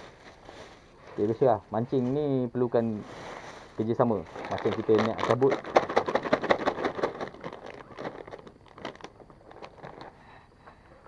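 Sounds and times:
plastic bags rustling: 0:02.8 - 0:10.2.

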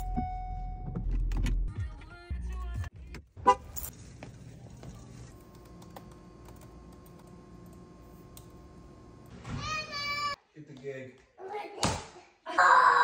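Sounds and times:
car-horn-like toot: 0:03.4 - 0:03.7.

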